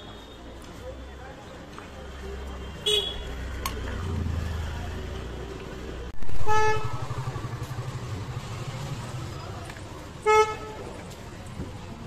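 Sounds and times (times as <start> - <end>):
engine and traffic rumble: 0.0 - 12.0
vehicle horn blasts: 2.8 - 3.3, 6.4 - 7.1, 10.2 - 10.8.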